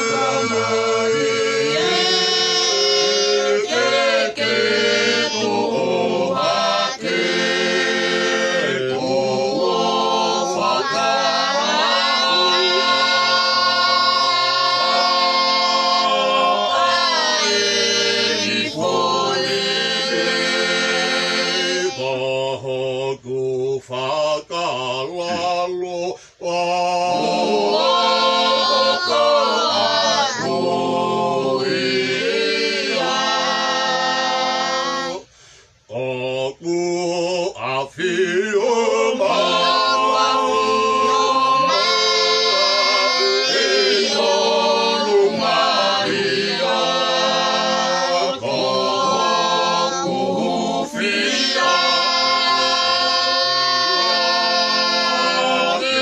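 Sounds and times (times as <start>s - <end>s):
group singing in harmony: 0.0s - 56.0s.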